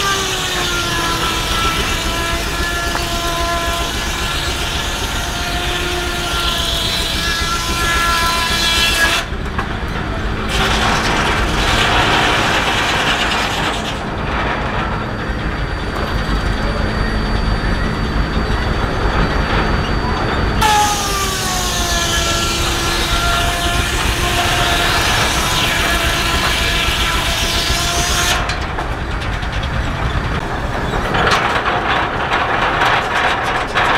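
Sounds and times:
circular saw cutting log: 0:00.0 - 0:09.3, 0:10.4 - 0:14.3, 0:20.6 - 0:28.7
mechanical clatter: 0:00.0 - 0:33.9
saw blade whine: 0:00.0 - 0:33.9.

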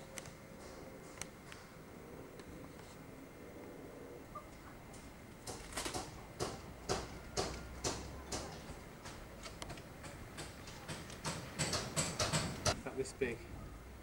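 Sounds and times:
sharp knocks: 0:05.4 - 0:12.8.

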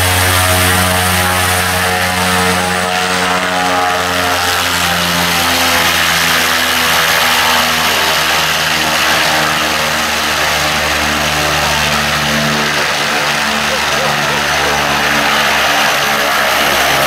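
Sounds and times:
turboprop engine droning: 0:00.0 - 0:17.0.

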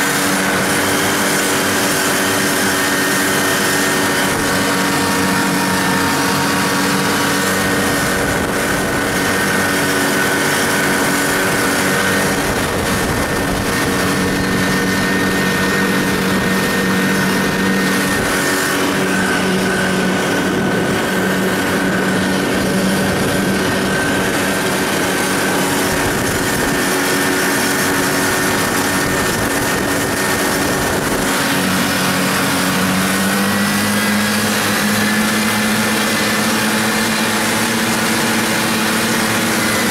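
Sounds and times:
snowmobile engine running: 0:00.0 - 0:39.9
track hissing on snow: 0:00.0 - 0:39.9.

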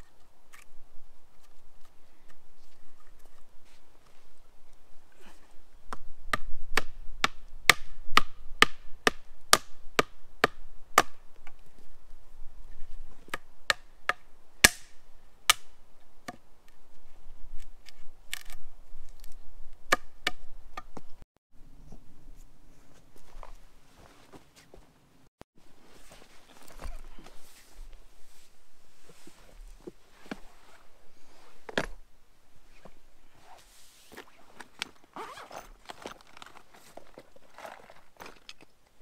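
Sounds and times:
hammering wooden poles: 0:05.9 - 0:11.2, 0:13.3 - 0:16.4.

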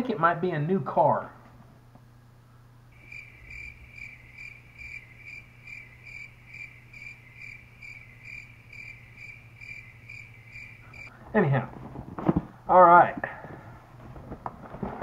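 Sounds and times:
cricket chirping: 0:02.9 - 0:11.2.

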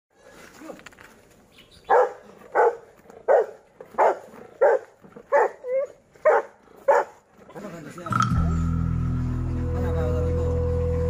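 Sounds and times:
dog barking: 0:01.9 - 0:07.2.

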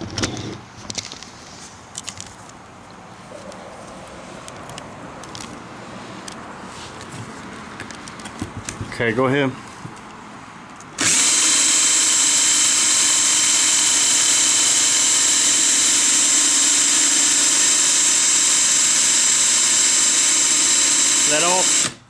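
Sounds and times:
power drill whining: 0:11.0 - 0:22.0.

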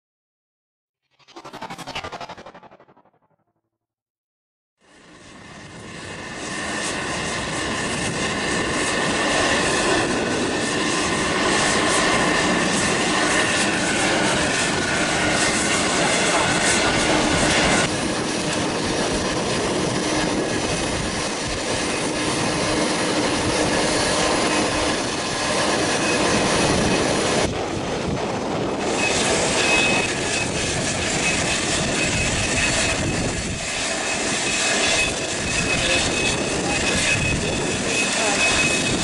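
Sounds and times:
thin high whine: 0:01.1 - 0:03.5
jet airliner rushing: 0:01.1 - 0:03.6, 0:07.0 - 0:39.0.

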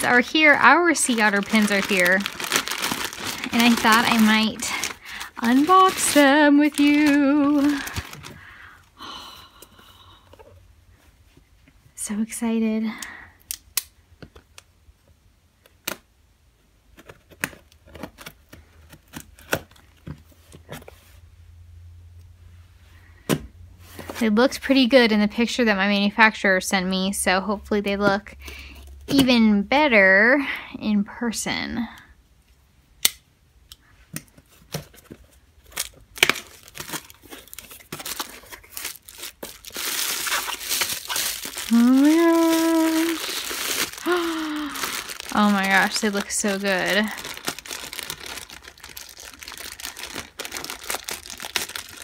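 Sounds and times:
papery tearing: 0:00.0 - 0:08.3, 0:36.2 - 0:52.0
bubble wrap crinkling: 0:00.0 - 0:09.4, 0:34.5 - 0:52.0.

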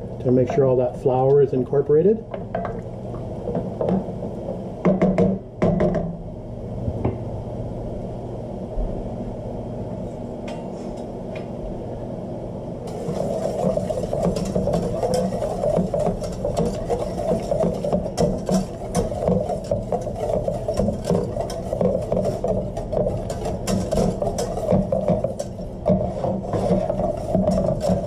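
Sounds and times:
steady low hum: 0:00.0 - 0:28.0
wooden spoon scraping a pan: 0:12.9 - 0:28.0.

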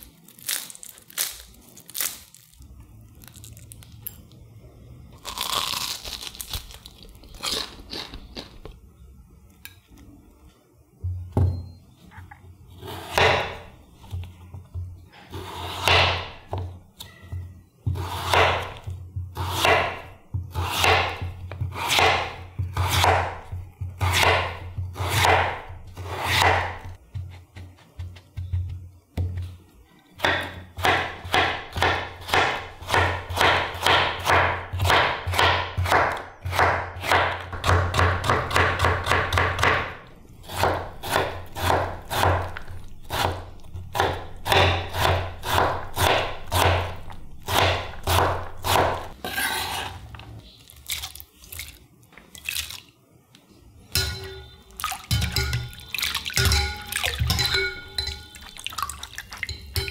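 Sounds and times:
knife chopping on wooden board: 0:12.9 - 0:13.6, 0:15.4 - 0:16.7, 0:17.9 - 0:29.4, 0:30.2 - 0:49.9
water sloshing in a bowl: 0:50.6 - 0:53.0, 0:54.0 - 0:59.9.

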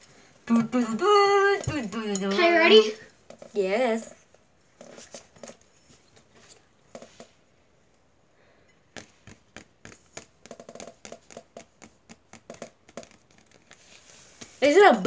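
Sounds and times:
fake nails tapping on hard object: 0:08.9 - 0:13.6.

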